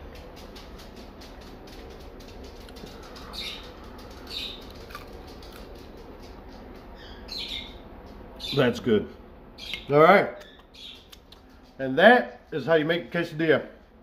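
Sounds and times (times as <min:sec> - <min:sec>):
person chewing crispy food: 0:02.6 - 0:05.9
mouth clicks: 0:09.7 - 0:11.5.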